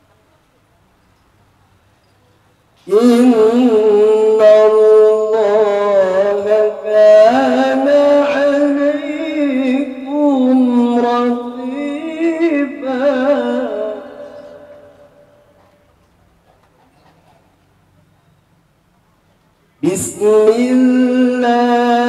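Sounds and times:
person chanting solo: 2.9s - 15.3s.

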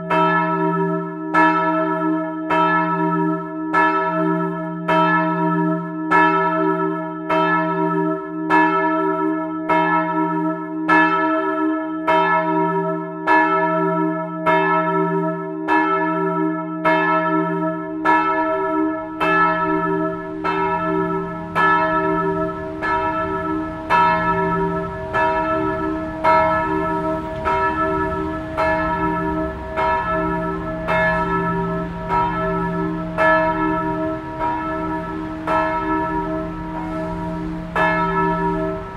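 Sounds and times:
church bells ringing: 0.0s - 38.9s
hum of lingering bell tones: 18.0s - 38.9s
low rumble: 18.9s - 38.9s.

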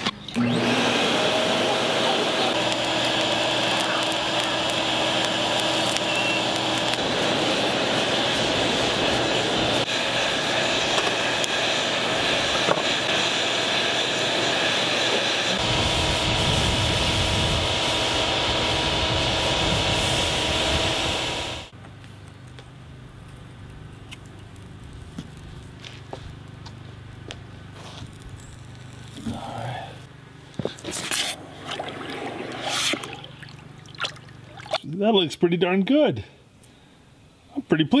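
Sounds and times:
electric blower rushing air: 0.0s - 21.8s, 30.8s - 33.8s.

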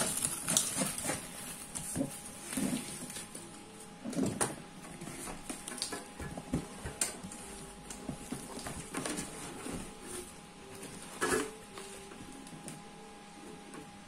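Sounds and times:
cardboard box rustling and scraping: 0.0s - 3.3s, 8.1s - 12.0s.

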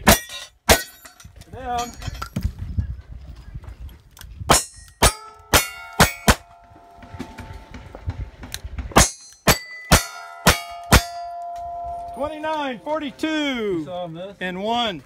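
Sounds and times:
steel targets ringing: 4.5s - 7.8s, 9.0s - 13.8s.

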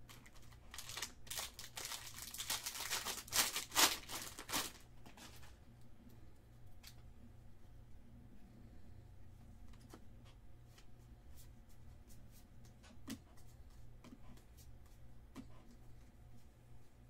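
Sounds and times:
wrapper crinkling and tearing: 0.1s - 4.9s.

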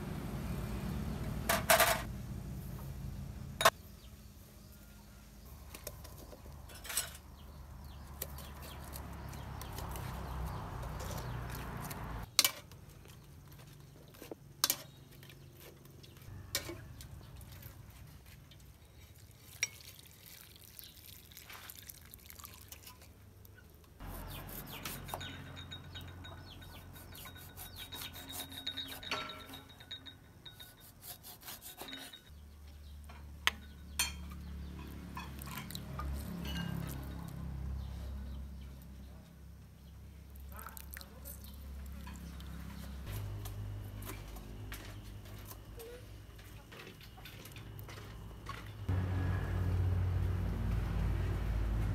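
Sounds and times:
utensils knocking on vessels: 24.1s - 31.0s.

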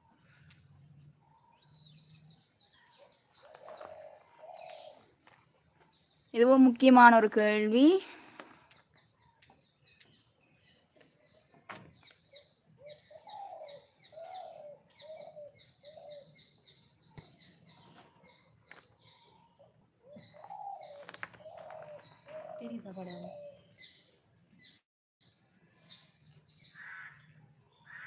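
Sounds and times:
birds cooing: 0.0s - 6.0s, 11.1s - 24.1s.

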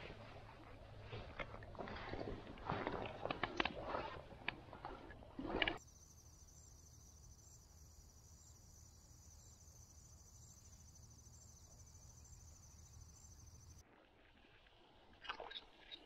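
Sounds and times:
high-pitched insect trill: 5.8s - 13.8s.

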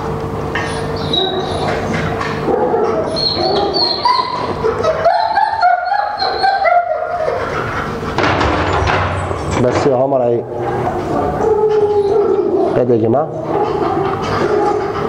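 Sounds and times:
dog barking and yelping: 0.6s - 8.1s, 10.6s - 15.0s.

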